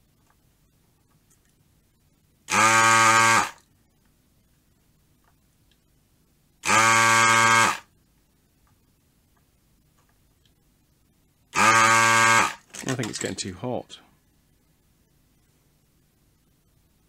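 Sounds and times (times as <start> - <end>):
vacuum pump buzzing: 2.5 - 3.6, 6.6 - 7.9, 11.5 - 12.8.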